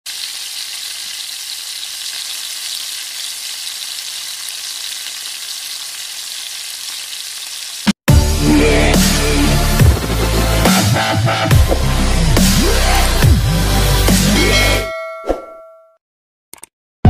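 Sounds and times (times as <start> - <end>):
omelettes sizzling in hot oil: 0.1 - 8.0
electronic music with heavy bass: 8.1 - 14.9.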